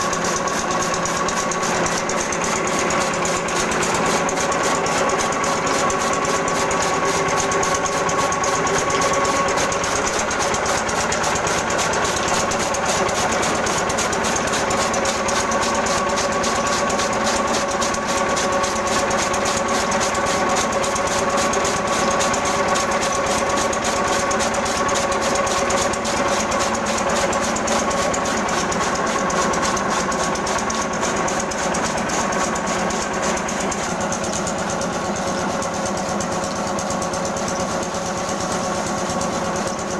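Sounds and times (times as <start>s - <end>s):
chaff cutter humming: 0.0s - 39.9s
diesel engine chugging: 0.0s - 39.9s.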